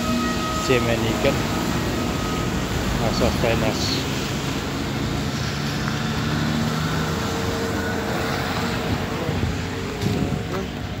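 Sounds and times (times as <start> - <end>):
vehicle engine droning: 0.0 - 11.0.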